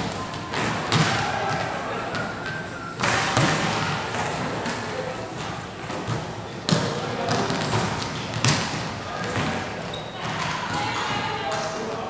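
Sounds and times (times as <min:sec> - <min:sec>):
hands slapping volleyball: 0:03.0 - 0:03.8.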